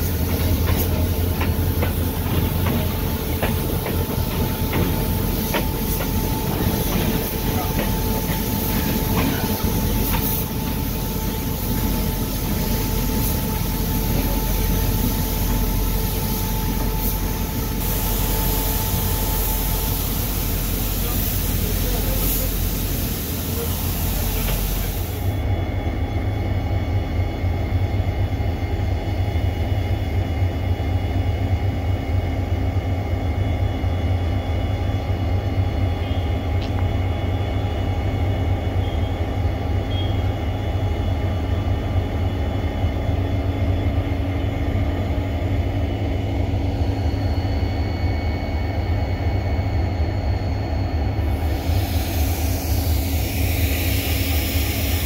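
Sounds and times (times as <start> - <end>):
diesel locomotive idling: 0.0 - 55.0
rush of hiss: 15.2 - 25.3, 51.4 - 55.0.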